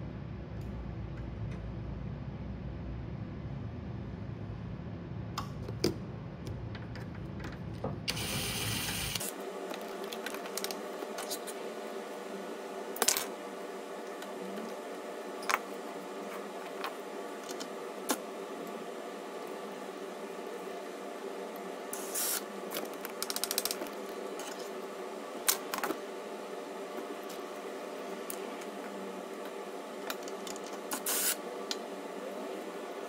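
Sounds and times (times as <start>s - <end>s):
low hum: 0.0s - 8.2s.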